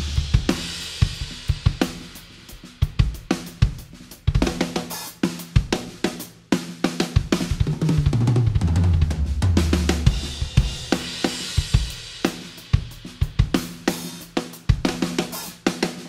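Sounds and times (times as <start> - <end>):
drum kit funk groove: 0.0 - 16.0.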